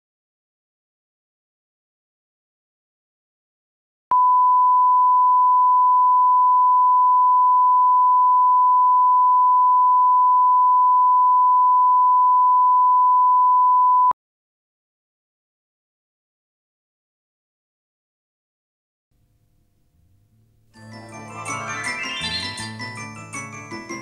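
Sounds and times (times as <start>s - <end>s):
steady test tone beep: 4.1s - 14.2s.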